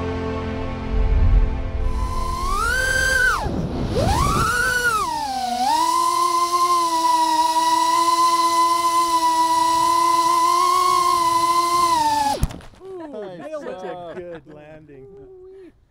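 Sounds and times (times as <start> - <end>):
drone propellers whining: 0.6 - 12.8.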